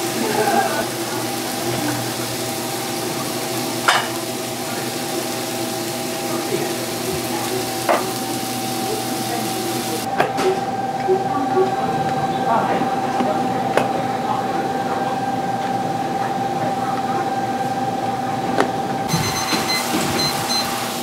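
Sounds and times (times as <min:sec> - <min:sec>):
food sizzling on a pan: 0:00.0 - 0:10.1, 0:19.1 - 0:21.0.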